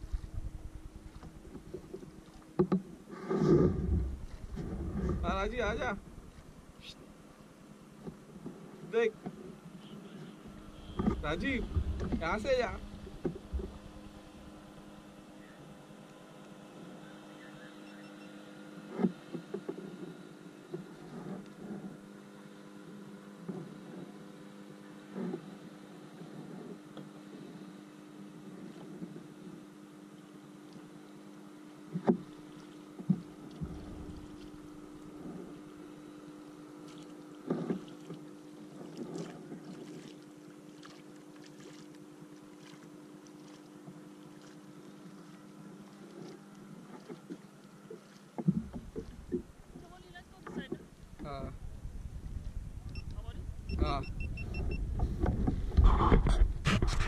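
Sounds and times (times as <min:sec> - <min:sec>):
kayak bumps: 0:00.0 - 0:06.7, 0:10.2 - 0:14.6, 0:31.9 - 0:32.3, 0:37.4 - 0:40.2, 0:46.0 - 0:51.3, 0:54.7 - 0:57.0
steady low hum: 0:00.0 - 0:57.0
water around kayak hull: 0:00.0 - 0:57.0.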